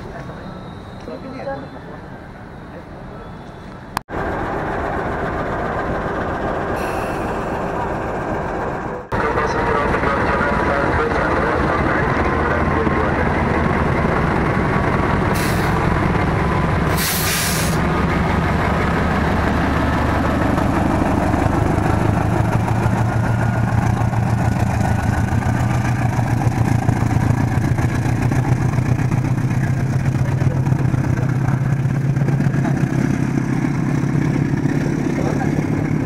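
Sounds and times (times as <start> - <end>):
diesel locomotive engine running: 0.0 - 36.0
air hiss: 16.9 - 17.8.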